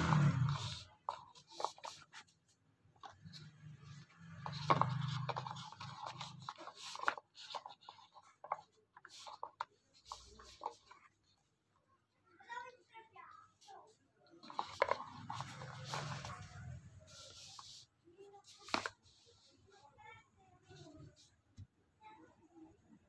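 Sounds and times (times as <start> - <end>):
cardboard boxes scraping and tapping: 4.4 - 8.6, 14.4 - 16.5.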